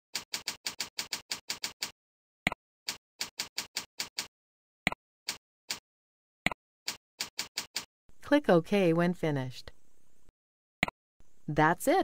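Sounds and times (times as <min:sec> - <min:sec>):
keyboard typing: 0:00.2 - 0:01.9, 0:06.9 - 0:07.9.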